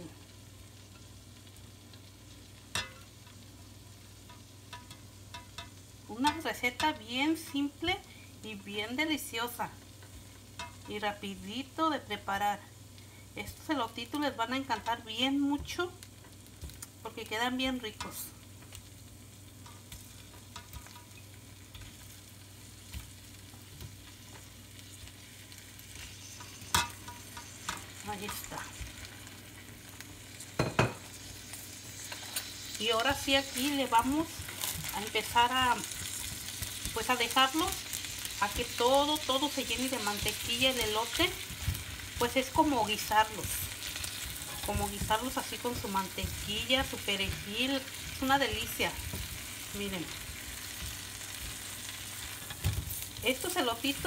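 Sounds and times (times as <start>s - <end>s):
butter sizzling in a pan: 0.0s - 54.0s.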